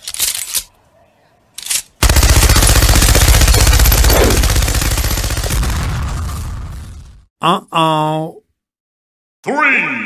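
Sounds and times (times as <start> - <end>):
machine gun automatic burst: 2.0 - 6.5.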